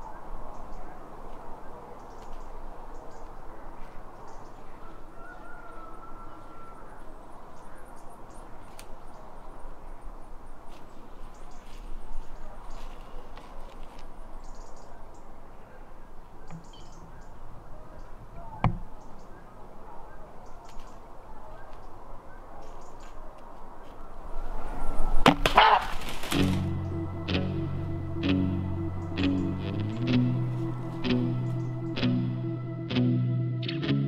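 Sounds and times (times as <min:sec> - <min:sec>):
rustles of leaves and twigs: 0:00.1 - 0:16.9, 0:20.6 - 0:27.2
air moving through trees: 0:24.0 - 0:32.6.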